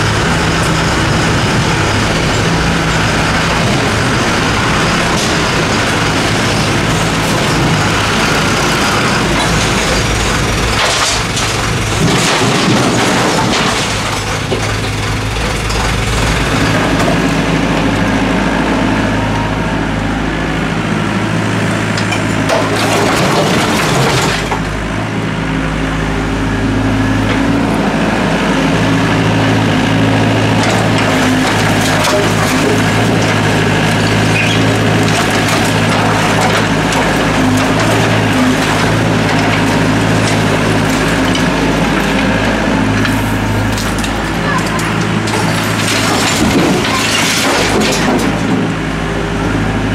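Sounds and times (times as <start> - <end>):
excavator diesel engine running: 0.0 - 49.9
rubble crashing into metal truck bed: 2.9 - 17.3, 22.0 - 24.8, 30.4 - 43.0, 43.6 - 48.9.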